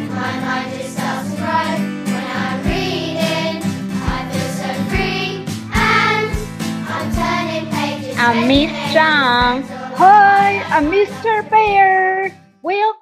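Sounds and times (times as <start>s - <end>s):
song with singing voices: 0.0s - 12.1s
bass line: 8.2s - 12.2s.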